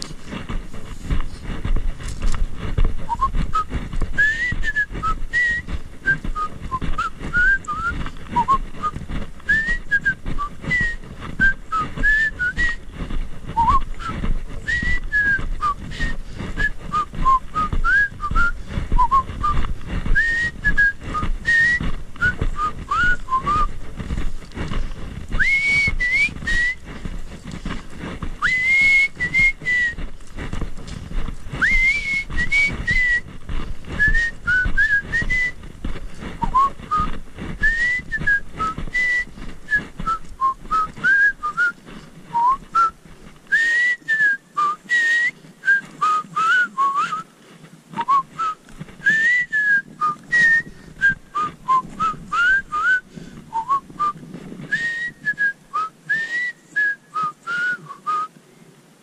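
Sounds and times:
footsteps on dirt trail: 0:00.0 - 0:59.0
person whistling a tune: 0:03.1 - 0:08.9, 0:09.5 - 0:12.8, 0:13.6 - 0:14.1, 0:14.7 - 0:19.6, 0:20.2 - 0:23.7, 0:25.4 - 0:26.8, 0:28.4 - 0:30.0, 0:31.6 - 0:33.2, 0:34.0 - 0:35.6, 0:40.0 - 0:42.9, 0:43.5 - 0:47.2, 0:48.0 - 0:58.3.

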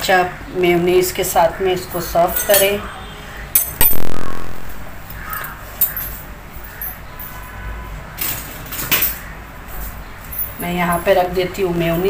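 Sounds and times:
loud metallic clank ringing: 0:03.6 - 0:05.1.

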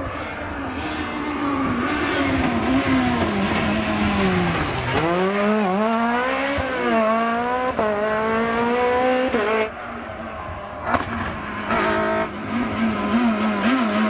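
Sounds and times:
rally car engine revving: 0:00.0 - 0:14.0.

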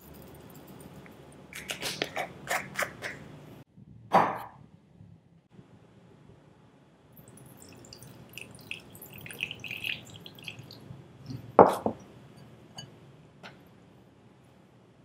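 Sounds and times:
water trickling into glass bowl: 0:07.2 - 0:10.8.

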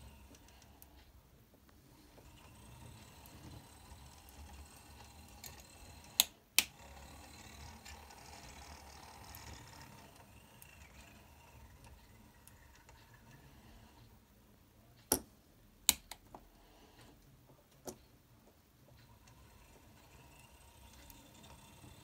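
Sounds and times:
model train motor humming: 0:00.0 - 0:01.0, 0:01.9 - 0:14.1, 0:19.0 - 0:22.0.

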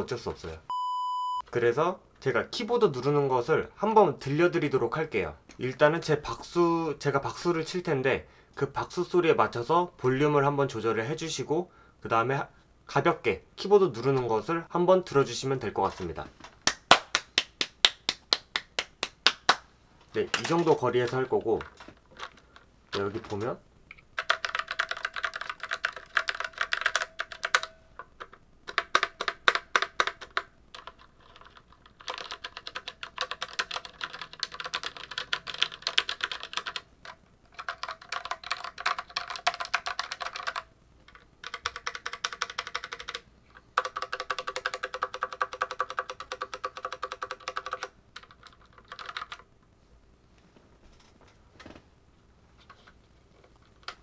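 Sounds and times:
mechanical keyboard typing: 0:21.6 - 0:43.2, 0:43.8 - 0:49.5.

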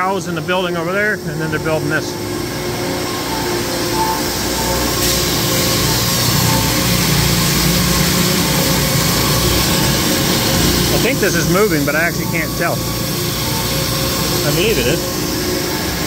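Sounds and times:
mechanical hum of motors and fans: 0:00.0 - 0:16.0.

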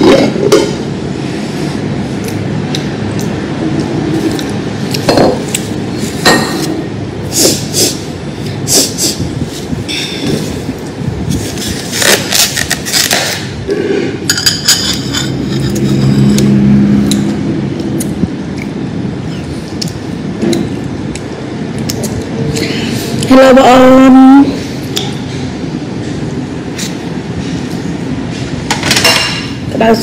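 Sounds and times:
low droning hum: 0:00.0 - 0:30.0
dishes and utensils clinking: 0:04.2 - 0:07.6, 0:12.4 - 0:16.5, 0:28.7 - 0:29.6.

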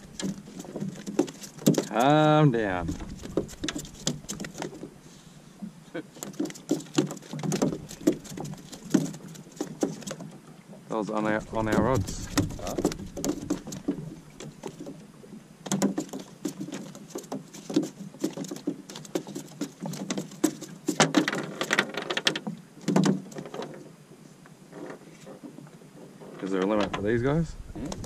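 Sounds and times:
fish flapping on boat floor: 0:00.0 - 0:05.0, 0:06.1 - 0:10.4, 0:11.3 - 0:15.0, 0:15.6 - 0:23.8.

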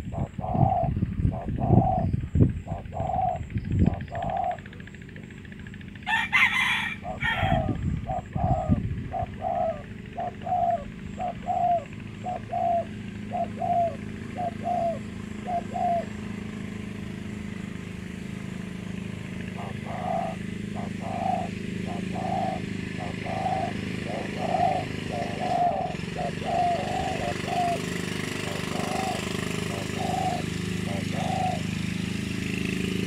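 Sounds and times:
doves cooing: 0:00.0 - 0:16.9, 0:19.2 - 0:32.8
rooster crowing: 0:06.0 - 0:07.8.

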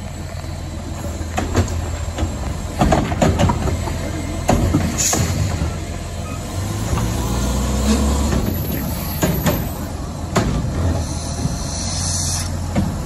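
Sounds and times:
trash cart knocking and clattering: 0:00.0 - 0:11.6, 0:12.6 - 0:13.0
truck engine running: 0:00.0 - 0:13.0
hydraulic arm hiss: 0:04.9 - 0:05.8, 0:10.8 - 0:12.7.

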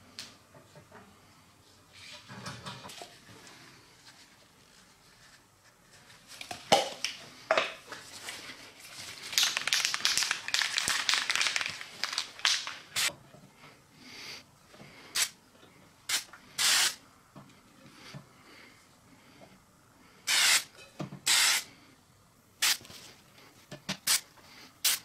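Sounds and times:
mixing ball rattling in spray can: 0:09.2 - 0:13.1
spray can hissing: 0:16.1 - 0:17.0, 0:20.3 - 0:20.7, 0:21.3 - 0:21.7, 0:24.0 - 0:24.2.

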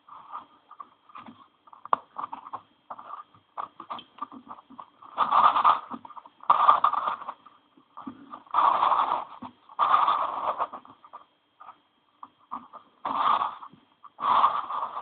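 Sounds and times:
plastic puzzle clicks and scrapes: 0:00.1 - 0:11.8, 0:12.4 - 0:15.0
plastic puzzle grinding turns: 0:00.2 - 0:11.2, 0:12.5 - 0:15.0.

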